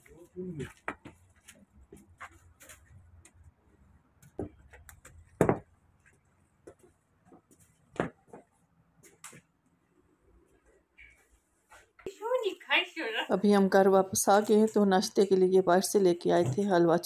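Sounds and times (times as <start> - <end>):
footsteps: 0.0 - 9.5, 10.4 - 12.1.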